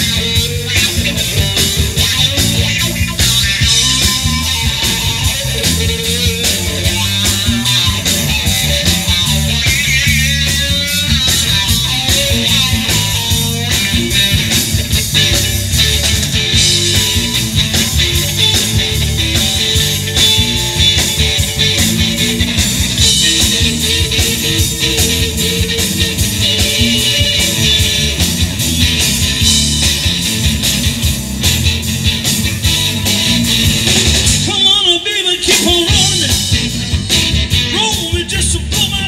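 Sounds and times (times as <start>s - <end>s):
blues-rock band playing: 0.0s - 39.0s.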